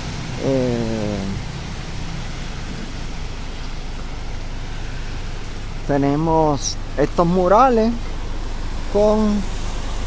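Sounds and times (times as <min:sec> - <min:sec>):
rain falling: 0:00.0 - 0:10.0
man's voice: 0:00.4 - 0:01.4, 0:05.9 - 0:08.0.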